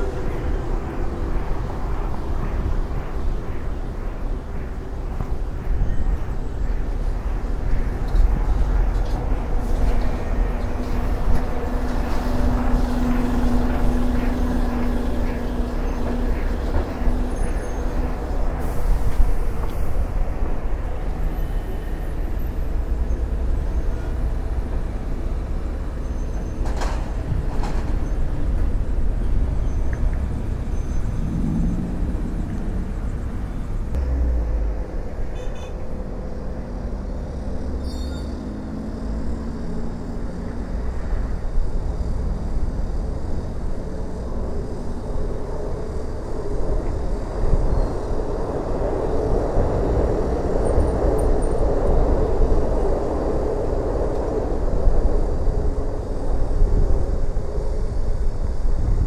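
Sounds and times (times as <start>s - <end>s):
traffic rumble: 0.0s - 59.0s
engine note rising and falling: 31.2s - 35.3s.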